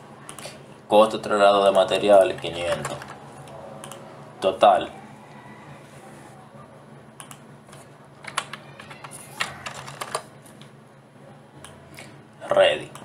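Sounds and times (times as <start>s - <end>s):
faint steady hum: 0.0s - 13.0s
computer keyboard keystrokes: 3.8s - 4.0s, 7.2s - 10.3s.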